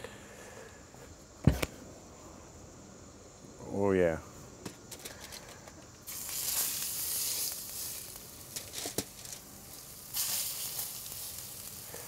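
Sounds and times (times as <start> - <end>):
light knocks: 1.4 - 1.8
fish sizzling in hot pan: 6.1 - 12.0.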